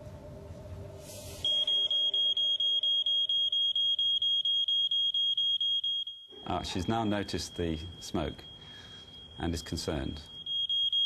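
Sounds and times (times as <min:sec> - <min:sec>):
low room hum: 0:00.0 - 0:05.6
smoke alarm beeping: 0:01.4 - 0:11.0.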